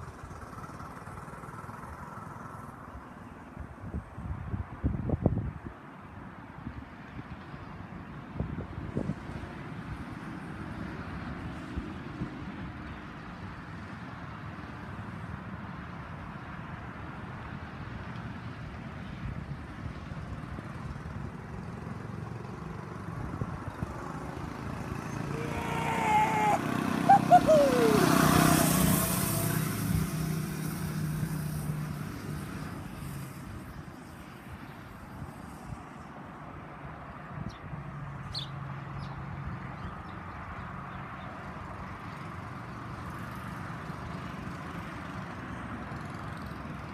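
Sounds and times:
distant engine running: 21.6s - 30.8s.

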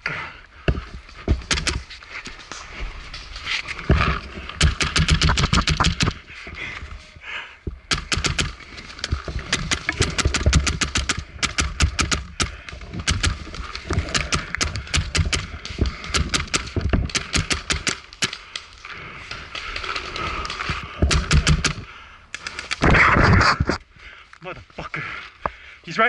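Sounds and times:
paintball markers firing: 1.4s - 1.8s, 4.6s - 6.2s, 7.9s - 18.7s, 19.6s - 21.8s.

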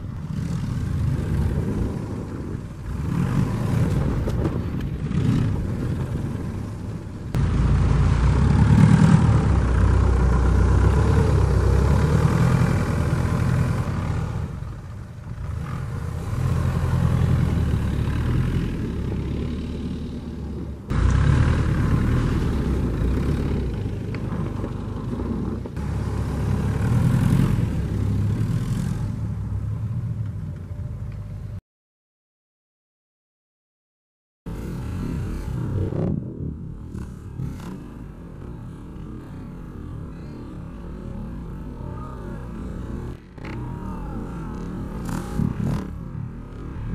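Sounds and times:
diesel engine revving hard: 7.4s - 24.1s, 25.8s - 29.3s.

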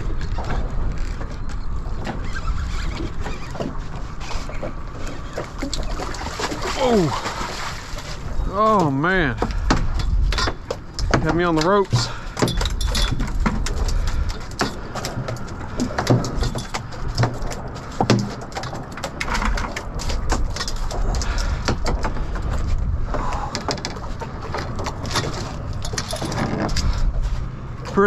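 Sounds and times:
fish flopping on boat deck: 0.0s - 28.0s
wind rumble: 0.0s - 28.0s
lapping water: 5.0s - 9.7s.

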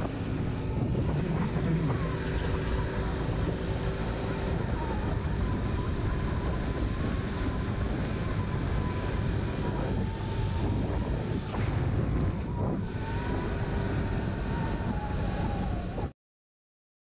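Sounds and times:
wind buffeting microphone: 0.0s - 16.1s.

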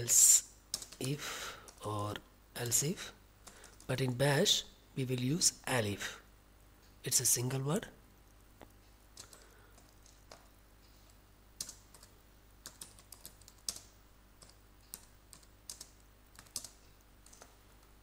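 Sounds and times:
steady low hum: 0.0s - 18.0s
computer keyboard typing: 0.7s - 1.9s, 2.8s - 4.0s, 9.1s - 10.5s, 11.6s - 17.9s.

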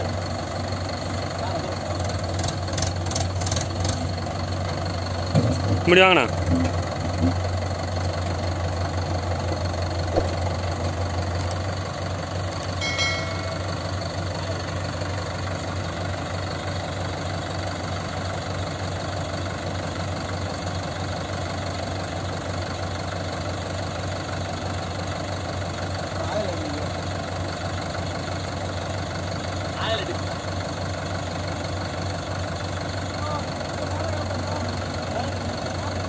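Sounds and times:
diesel engines idling: 0.0s - 36.0s.

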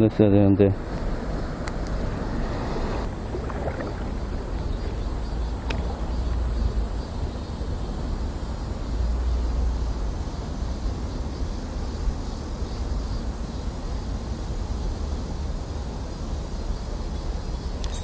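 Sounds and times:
wind rumble on microphone: 0.7s - 18.0s
stream flowing: 1.8s - 8.0s.

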